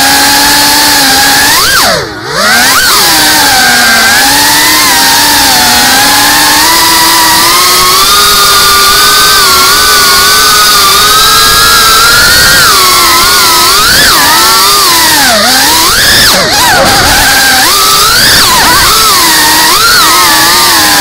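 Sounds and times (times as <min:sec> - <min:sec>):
drone motors whining: 0:00.0 - 0:21.0.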